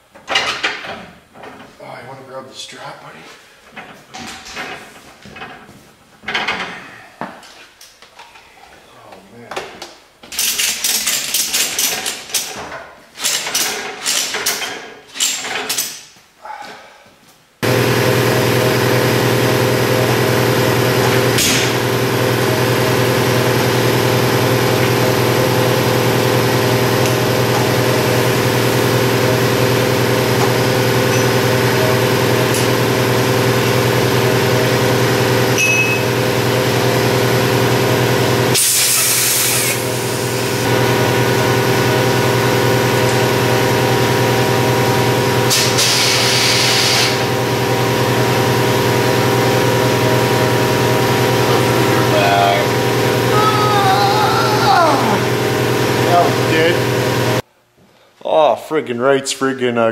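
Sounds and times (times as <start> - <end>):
steady mechanical hum: 0.0 - 59.9
loud air hissing: 21.1 - 21.9, 38.6 - 40.8, 45.5 - 47.3.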